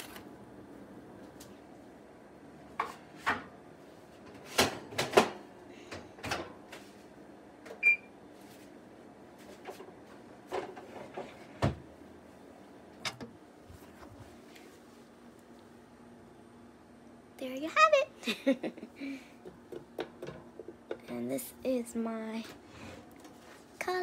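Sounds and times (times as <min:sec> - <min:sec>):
short electronic stove beep: 0:07.8 - 0:08.1.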